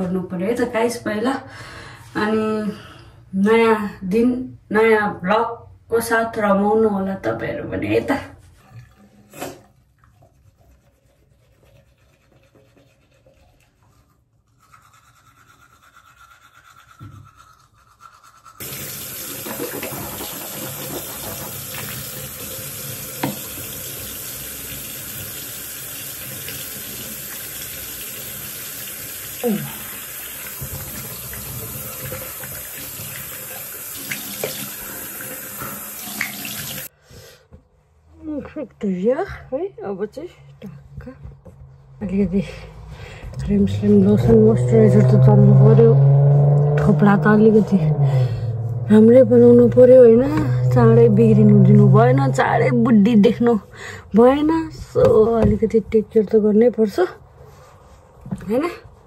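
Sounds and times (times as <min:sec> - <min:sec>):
tap running into sink: 0:18.6 - 0:25.4, 0:30.4 - 0:33.3.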